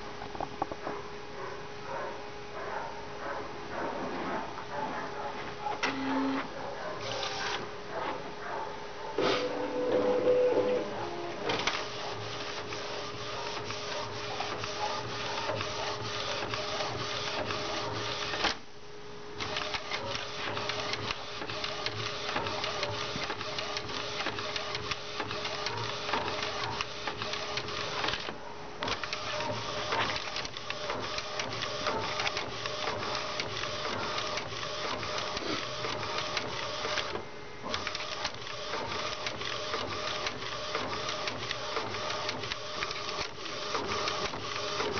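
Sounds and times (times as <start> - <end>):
printer carriage clattering: 9.2 - 12.8.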